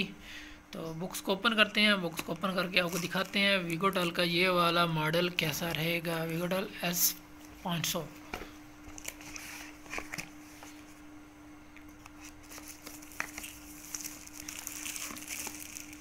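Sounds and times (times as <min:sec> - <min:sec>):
faint steady hum: 0:00.0 - 0:16.0
plastic and cardboard rustling: 0:02.1 - 0:04.1, 0:08.3 - 0:11.0, 0:12.2 - 0:16.0.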